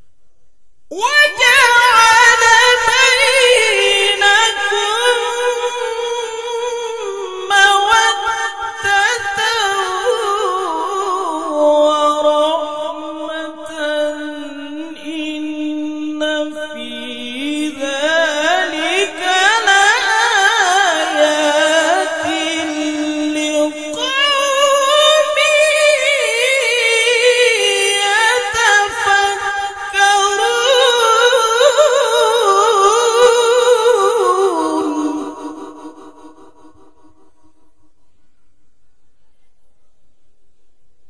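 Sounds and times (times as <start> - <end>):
man reciting melodically: 0.9 - 37.3
breath: 35.5 - 39.9.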